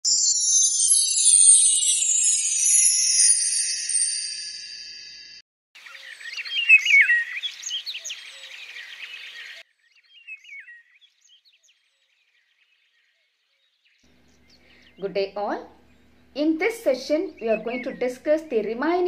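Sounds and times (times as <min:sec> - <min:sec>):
birds chirping: 0:05.8 - 0:19.0.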